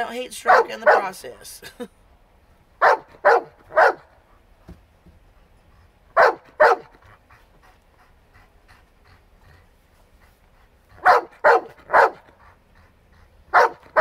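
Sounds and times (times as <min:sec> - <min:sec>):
dog barking: 0:00.5 - 0:01.2, 0:02.8 - 0:04.2, 0:06.2 - 0:06.9, 0:11.0 - 0:12.3, 0:13.5 - 0:14.0.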